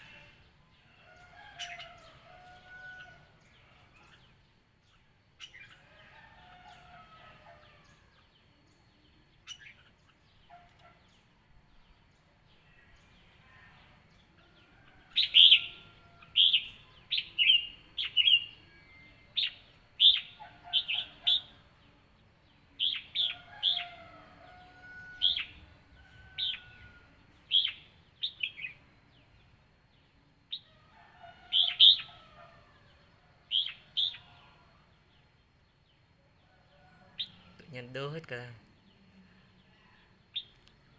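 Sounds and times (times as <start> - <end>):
bulbuls calling: 15.1 - 18.5, 19.4 - 21.6.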